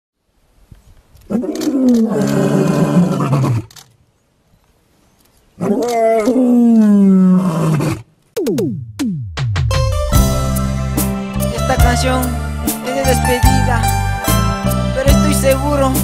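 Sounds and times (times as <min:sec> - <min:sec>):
lion roaring: 0:01.3 - 0:03.8, 0:05.6 - 0:08.1.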